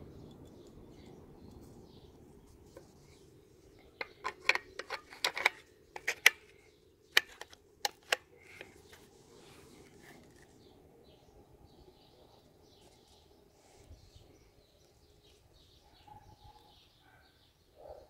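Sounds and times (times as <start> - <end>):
rifle bolt clicking: 7.1 - 8.7.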